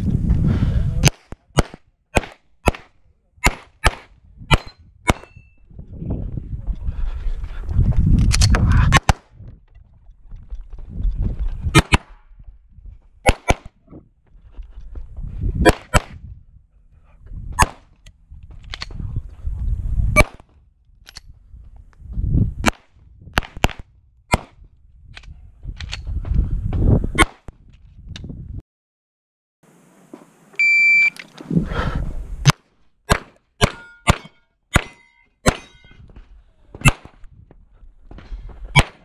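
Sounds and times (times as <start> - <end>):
pistol shots: 1.0 - 5.4, 13.2 - 13.7, 33.1 - 35.8.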